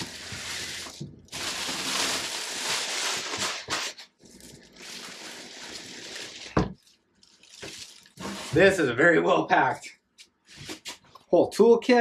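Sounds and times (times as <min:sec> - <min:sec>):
packaging rustling and scraping: 0:00.0 - 0:08.8.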